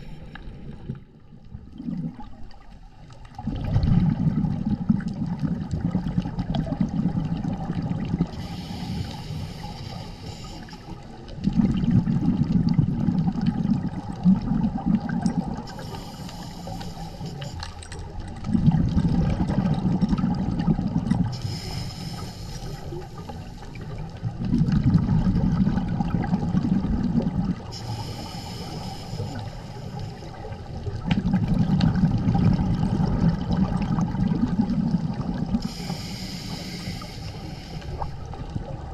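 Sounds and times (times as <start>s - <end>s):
regulator hiss on inhale: 0.0s - 0.8s, 8.3s - 11.2s, 15.6s - 17.8s, 21.2s - 24.1s, 27.7s - 30.7s, 35.6s - 38.4s
bubbling rumble on exhale: 0.0s - 38.9s.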